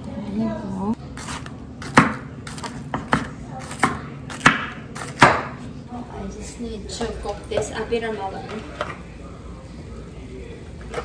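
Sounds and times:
knife chopping on wooden board: 0:01.2 - 0:05.6.

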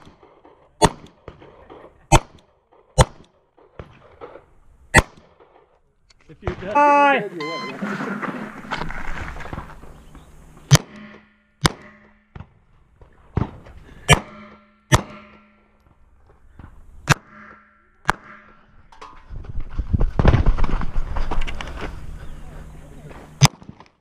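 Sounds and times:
pistol shots: 0:00.0 - 0:05.8, 0:10.6 - 0:12.6, 0:13.3 - 0:15.8, 0:17.0 - 0:18.6
rustling noise: 0:07.6 - 0:10.7, 0:19.1 - 0:23.4.

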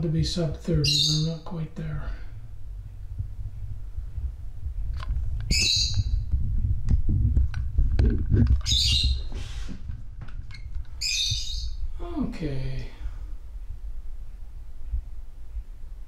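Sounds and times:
bird squawking: 0:00.8 - 0:01.4, 0:05.5 - 0:06.1, 0:08.6 - 0:09.3, 0:11.0 - 0:11.8.

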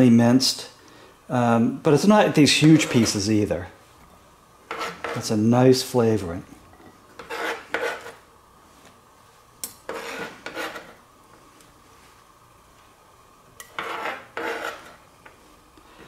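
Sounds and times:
knife scraping onion on cutting board: 0:02.7 - 0:03.2, 0:04.7 - 0:05.3, 0:07.2 - 0:08.2, 0:09.8 - 0:11.0, 0:13.6 - 0:15.0.

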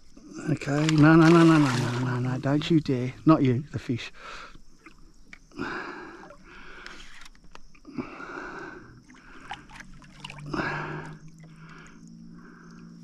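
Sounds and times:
fish splashing in water: 0:00.8 - 0:02.5, 0:09.0 - 0:12.0.

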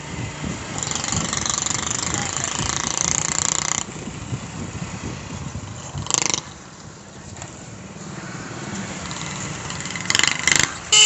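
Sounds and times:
motorcycle engine running: 0:00.0 - 0:07.4, 0:08.9 - 0:11.0
wind rush on microphone: 0:00.0 - 0:07.8.

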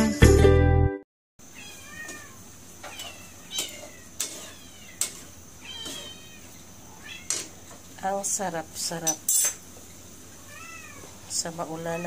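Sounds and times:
cat meowing: 0:01.5 - 0:07.5, 0:10.4 - 0:11.2.

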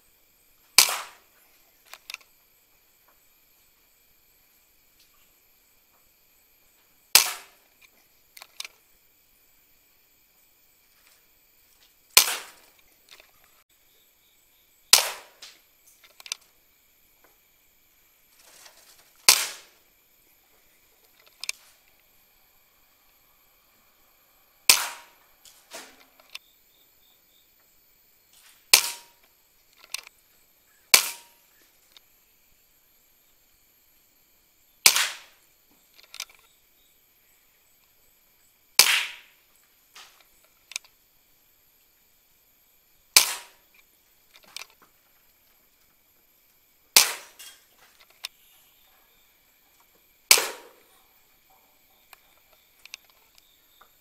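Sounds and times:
air rifle cracks: 0:00.8 - 0:01.3, 0:07.1 - 0:08.8, 0:12.2 - 0:13.3, 0:14.9 - 0:16.4, 0:19.2 - 0:19.8, 0:24.7 - 0:26.4, 0:28.7 - 0:30.1, 0:30.9 - 0:32.0, 0:34.8 - 0:35.4, 0:38.8 - 0:39.3, 0:43.2 - 0:44.8, 0:47.0 - 0:48.4, 0:50.3 - 0:50.9
faint clicks: 0:20.5 - 0:22.1, 0:39.6 - 0:41.0, 0:50.9 - 0:54.0.

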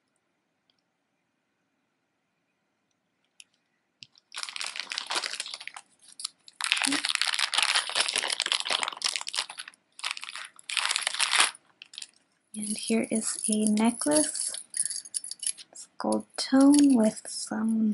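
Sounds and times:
plastic zip bag crinkling: 0:04.1 - 0:15.8.

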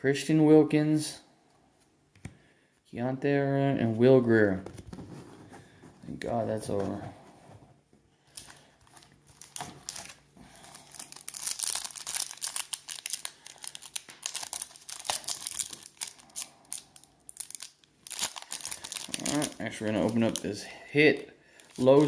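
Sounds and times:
plastic wrappers crinkling and tearing: 0:08.3 - 0:22.0.

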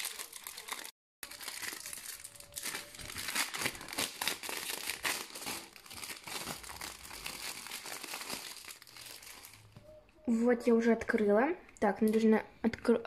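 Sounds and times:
cellophane crinkling: 0:00.0 - 0:09.8.

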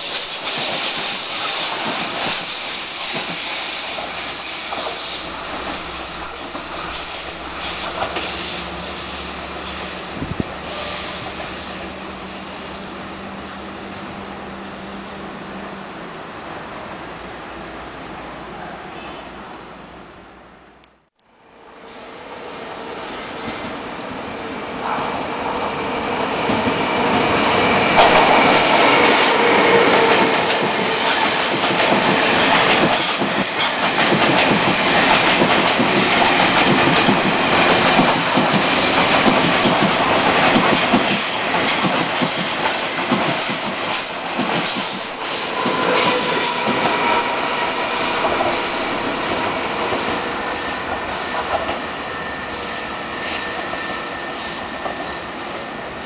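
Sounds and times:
train wheels clicking on rail joints: 0:00.0 - 0:12.0, 0:26.2 - 0:52.6
train wheels squealing: 0:00.0 - 0:16.3, 0:26.7 - 0:35.3, 0:38.1 - 0:56.0.

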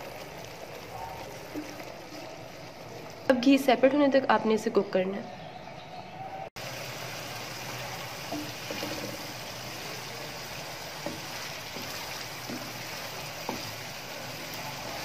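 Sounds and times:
wooden spoon stirring: 0:00.1 - 0:03.3, 0:08.3 - 0:15.0
sauce sizzling in a pan: 0:06.6 - 0:15.0.

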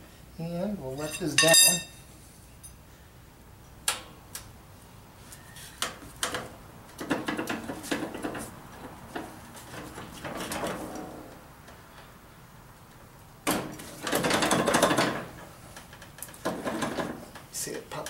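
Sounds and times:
clatter and scraping: 0:13.8 - 0:17.4.

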